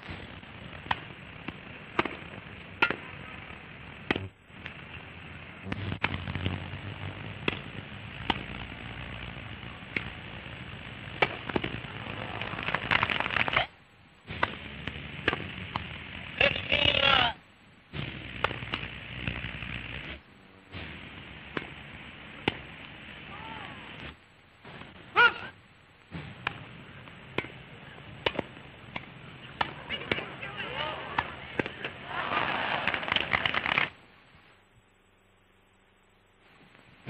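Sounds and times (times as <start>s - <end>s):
crowd noise: 0.0s - 17.4s, 18.0s - 34.4s
old newsreel soundtrack hiss: 0.0s - 37.0s.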